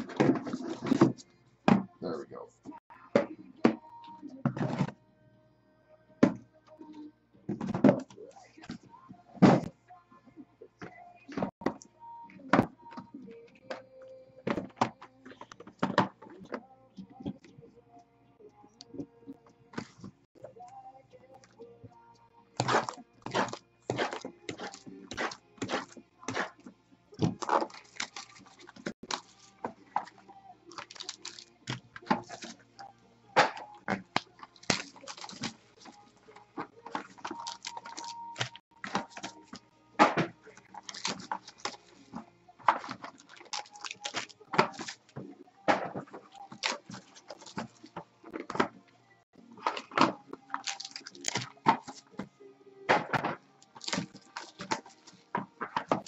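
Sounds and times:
cardboard packaging crinkling: 27.2s - 30.1s, 30.7s - 32.6s, 33.9s - 36.1s, 36.8s - 39.6s, 42.8s - 45.2s, 50.4s - 52.0s.

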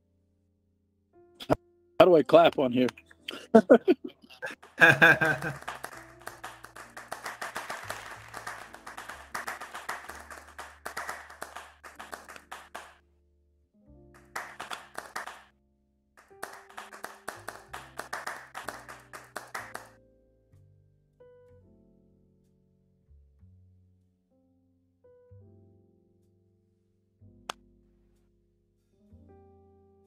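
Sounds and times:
background music with low notes: 1.2s - 15.4s, 16.2s - 30.0s
people clapping: 4.4s - 13.0s, 14.2s - 15.5s, 16.2s - 19.9s.

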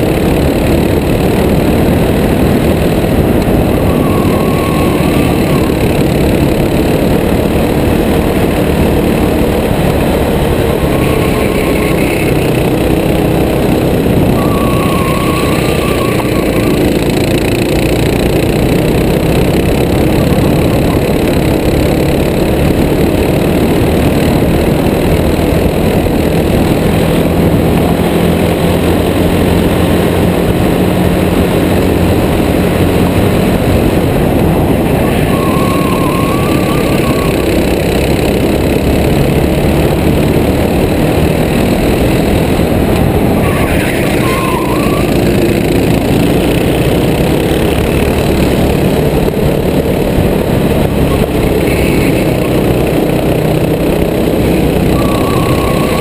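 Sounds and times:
go-kart engine racing: 0.0s - 56.0s
high wavering squeal: 3.5s - 6.1s, 10.6s - 12.7s, 14.3s - 17.5s, 34.8s - 38.0s, 43.2s - 45.7s, 54.8s - 56.0s.

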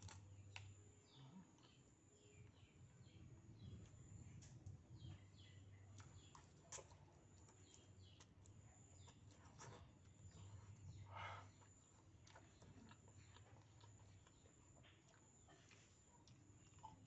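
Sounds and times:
small birds chirping: 0.0s - 17.0s
slurping and chewing: 6.0s - 17.0s.

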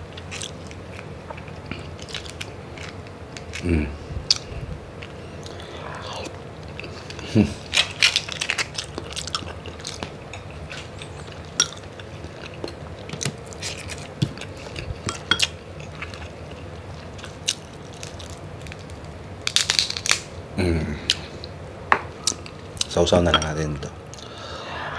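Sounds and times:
person chewing: 0.0s - 20.2s
crab shell cracking: 7.7s - 20.4s.

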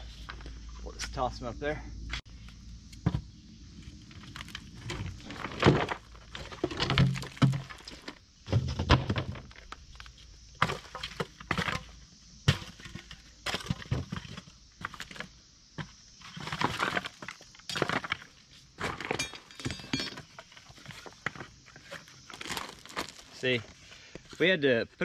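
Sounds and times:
scraping and crunching on gravel: 3.7s - 25.0s
wood knocking and clattering: 4.9s - 9.6s.

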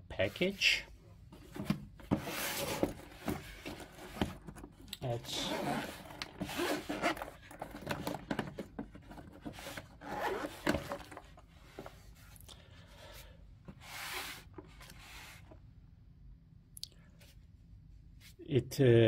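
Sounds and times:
case rubbing and scraping: 1.4s - 12.1s, 13.8s - 15.5s
zipper rasping: 5.2s - 8.2s, 9.6s - 11.1s.

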